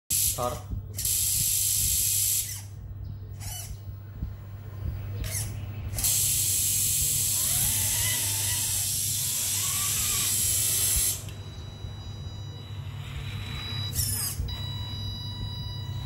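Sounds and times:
servo hissing buzz: 0:05.2 - 0:11.3.

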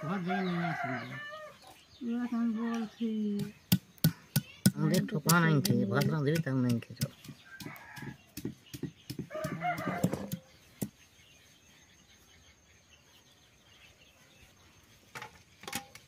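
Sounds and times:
stone pestle knocking on stone: 0:03.4 - 0:10.9.

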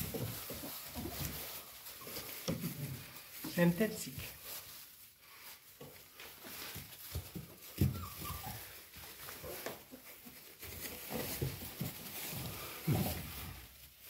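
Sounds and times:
paws scratching on wooden boards: 0:00.0 - 0:03.5, 0:05.6 - 0:14.0
paper rustling: 0:00.0 - 0:14.0
faint puppy whimper: 0:07.7 - 0:09.0.

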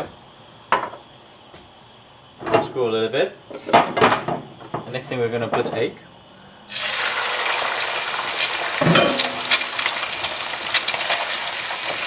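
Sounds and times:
egg sizzling in hot oil: 0:06.7 - 0:12.0.

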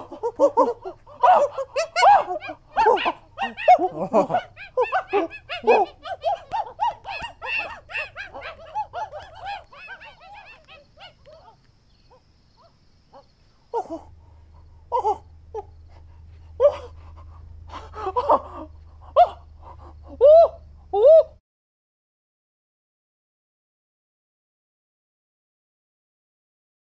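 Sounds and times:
monkey hooting and shrieking: 0:00.0 - 0:11.6, 0:12.6 - 0:14.1, 0:14.9 - 0:15.8, 0:16.5 - 0:21.4
monkeys hooting and chattering: 0:00.0 - 0:21.4
low hum: 0:13.5 - 0:21.4.

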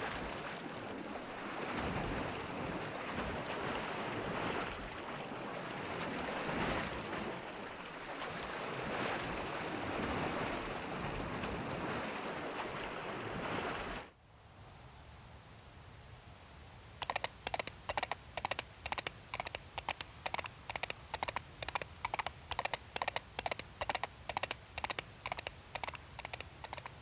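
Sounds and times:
sea waves washing in: 0:00.0 - 0:14.2.

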